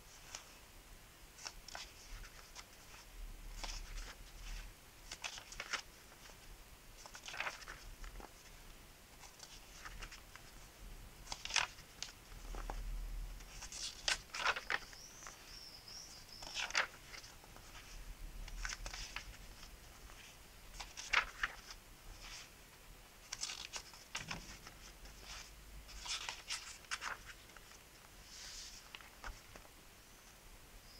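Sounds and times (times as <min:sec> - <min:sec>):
book pages turning: 0:01.4 - 0:06.4, 0:07.0 - 0:08.6, 0:09.2 - 0:10.6, 0:11.2 - 0:12.8, 0:13.4 - 0:15.5, 0:16.3 - 0:22.5, 0:23.2 - 0:29.7.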